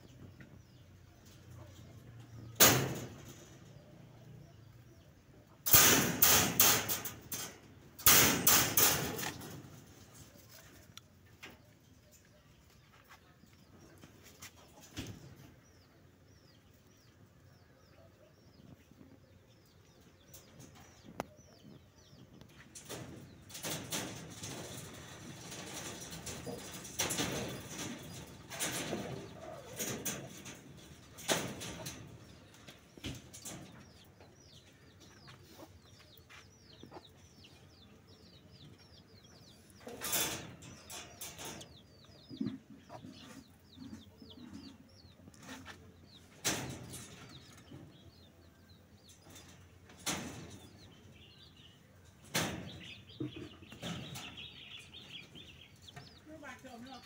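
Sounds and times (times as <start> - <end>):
rabbits scuffling in a hutch: 0.0 - 57.0
small birds chirping: 0.0 - 57.0
knocks and rattles: 1.2 - 3.8, 5.6 - 10.2, 19.9 - 35.3, 39.7 - 56.2.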